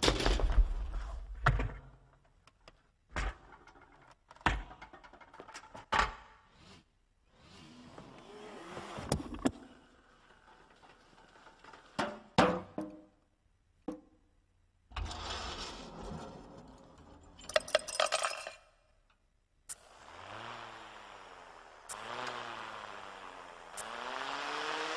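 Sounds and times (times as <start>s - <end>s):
rolling on a wooden floor: 7.9s - 13.1s, 14.9s - 18.5s
metal parts knocking and tipping: 17.3s - 18.8s.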